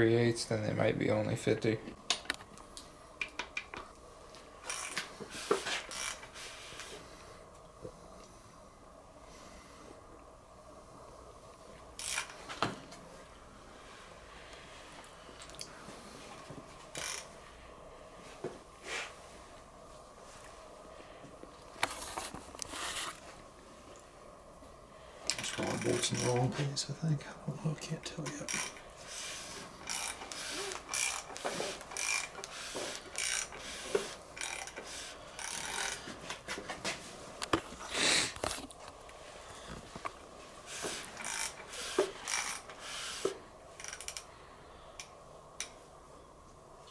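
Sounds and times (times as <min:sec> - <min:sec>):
faint steady background noise: 0:00.0 - 0:46.9
hand ratchet clicking: 0:04.6 - 0:05.1, 0:05.9 - 0:06.3, 0:12.0 - 0:12.4, 0:17.0 - 0:17.3, 0:25.3 - 0:26.5, 0:28.4 - 0:28.8, 0:29.8 - 0:36.0, 0:40.8 - 0:44.3.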